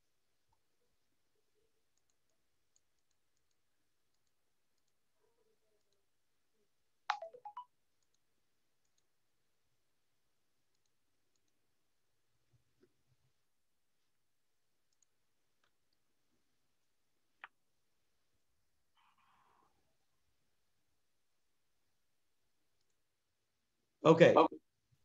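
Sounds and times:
faint clicks: 1.9 - 5.0, 10.7 - 11.6, 14.9 - 16.0, 22.8 - 23.0.

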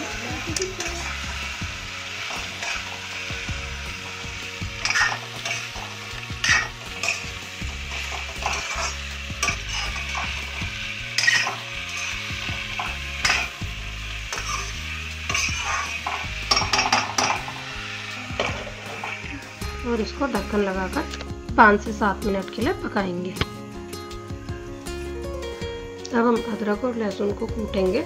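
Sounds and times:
vegetables sizzling in a pan: 0.0 - 28.0
metal spatula scraping pan: 4.8 - 7.3, 7.9 - 13.5, 14.3 - 19.4.

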